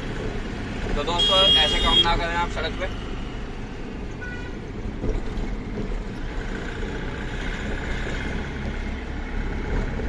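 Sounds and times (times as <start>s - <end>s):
road noise: 0.0s - 10.0s.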